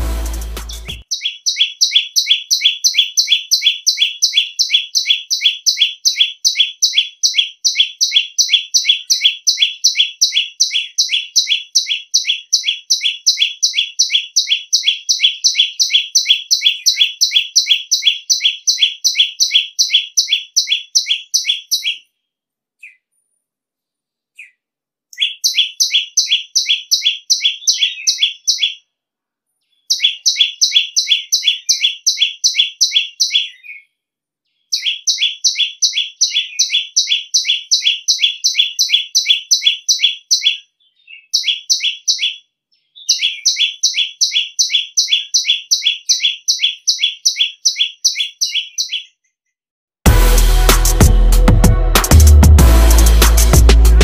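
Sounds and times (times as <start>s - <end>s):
bird singing sharp notes: 0.0s - 22.1s, 25.2s - 28.8s, 29.8s - 33.8s, 43.0s - 49.1s.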